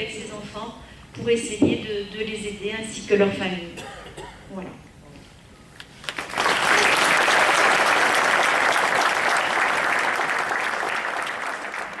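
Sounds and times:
audience applauding: 6.0 - 12.0.

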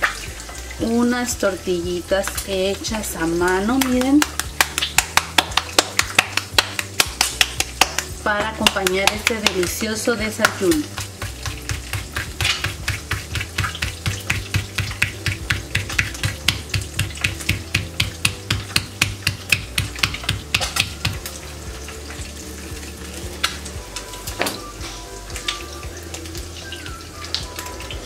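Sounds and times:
hands patting dough: 3.7 - 21.3.

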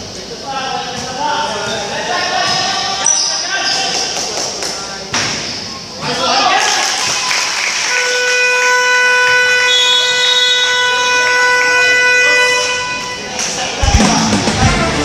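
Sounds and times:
game clock horn buzz: 7.9 - 13.3.

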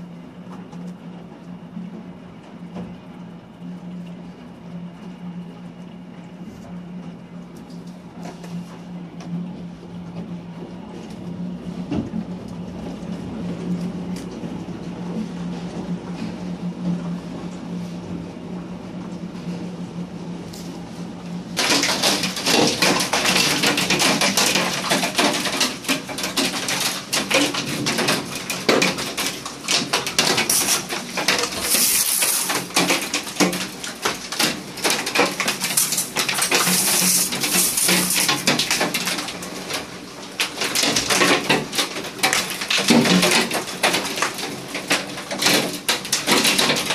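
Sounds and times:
hail clattering on hard surfaces: 21.6 - 46.9.

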